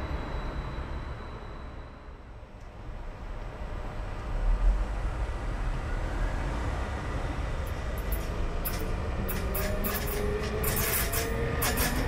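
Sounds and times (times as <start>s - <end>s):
train wheels rumbling on rails: 0.0s - 12.0s
electric locomotive traction noise: 6.4s - 12.0s.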